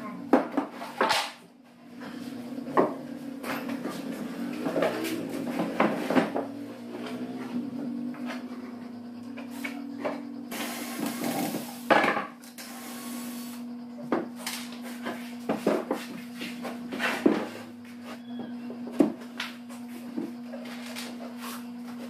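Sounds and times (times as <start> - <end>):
steady low hum: 0.0 - 22.0
knocks of tools and plywood panels: 0.3 - 1.4, 11.9 - 12.4, 14.0 - 17.6, 18.4 - 20.4
hissing noise: 10.5 - 11.9.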